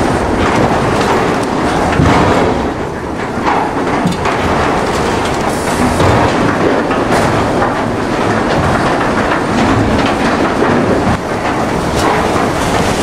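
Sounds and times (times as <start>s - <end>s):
log conveyor clattering: 0.0s - 13.0s.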